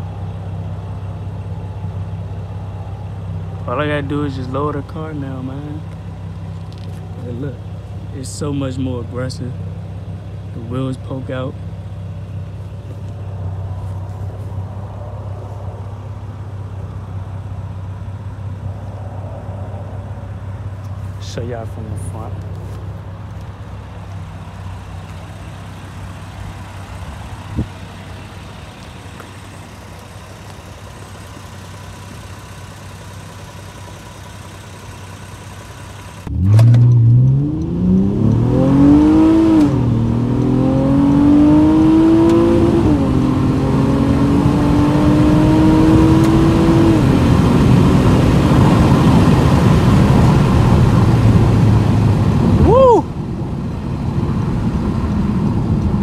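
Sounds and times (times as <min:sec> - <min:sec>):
car engine idling: 0:00.0 - 0:41.1
man talking: 0:03.6 - 0:05.9, 0:07.2 - 0:09.6, 0:10.5 - 0:11.6, 0:21.2 - 0:22.7
car engine revving under acceleration: 0:22.2 - 0:52.7.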